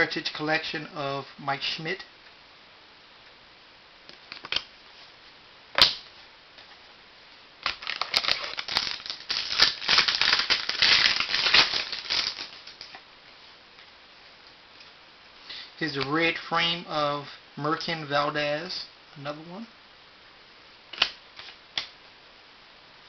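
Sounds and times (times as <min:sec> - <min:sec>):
foil wrapper crinkling: 0:07.6 - 0:12.9.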